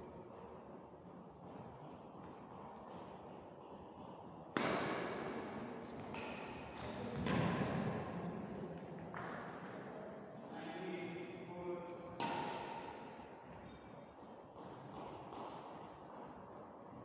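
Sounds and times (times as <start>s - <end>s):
rackets hitting shuttlecock: 4.5s - 8.0s, 12.1s - 13.2s.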